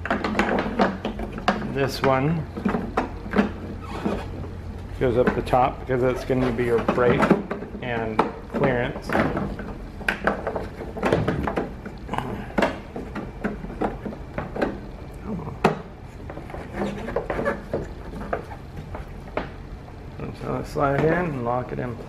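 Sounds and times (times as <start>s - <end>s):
hard plastic clicks and knocks: 6.7s - 14.9s.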